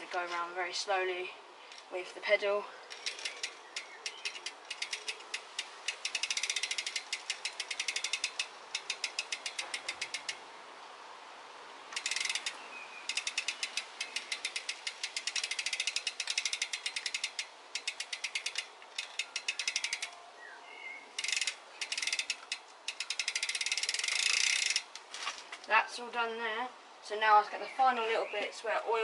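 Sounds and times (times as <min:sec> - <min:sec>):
bicycle hub ratchet clicking: 0:02.9 - 0:10.5, 0:11.9 - 0:20.2, 0:21.1 - 0:25.1.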